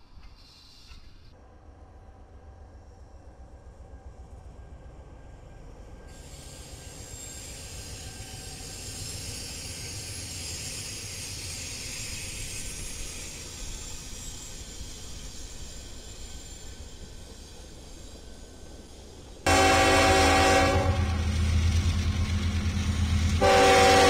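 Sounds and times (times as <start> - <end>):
train rumble and hiss: 0.0 - 24.0
wheel squeal: 6.1 - 19.3.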